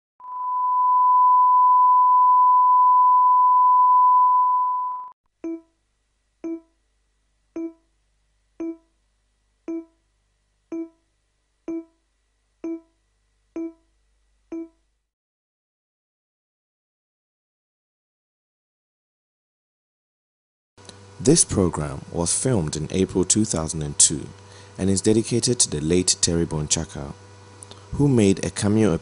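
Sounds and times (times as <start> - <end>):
short pitched countdown beeps: 4.7 - 5.7, 6.4 - 6.8, 7.6 - 7.9, 8.6 - 8.9, 9.7 - 10.0, 10.7 - 11.0, 11.7 - 12.0, 12.6 - 13.0, 13.6 - 13.9, 14.5 - 14.8
steady pure test tone: 6.4 - 6.8, 7.5 - 7.9, 8.6 - 9.0, 9.7 - 10.0, 10.7 - 11.0, 11.6 - 12.0, 12.6 - 13.0, 13.6 - 13.9.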